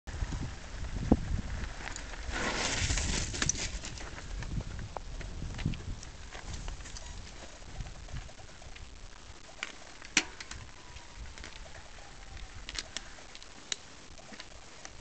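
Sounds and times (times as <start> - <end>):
bike clicks and knocks: 9.6 - 10.7.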